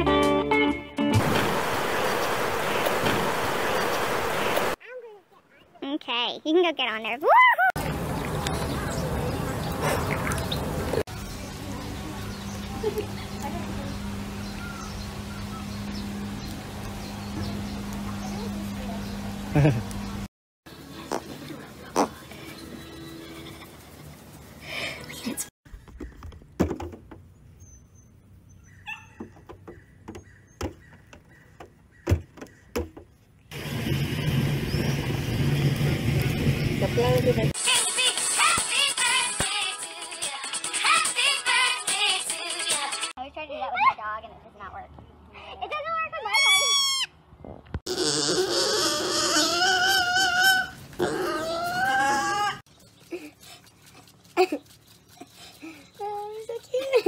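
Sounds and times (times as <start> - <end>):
pig squealing: 46.3 - 47.2, 47.9 - 52.6.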